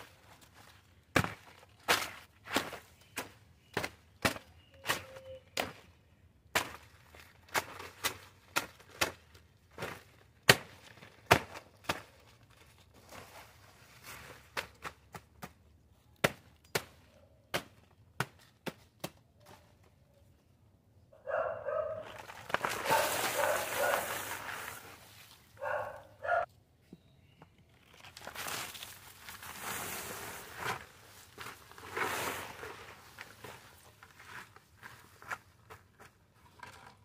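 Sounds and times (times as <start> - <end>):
snaps and knocks of leaves and stalks: 0.0 - 13.4, 22.0 - 25.6, 27.4 - 29.7
dog barking: 21.2 - 22.1, 22.8 - 24.1, 25.6 - 26.5.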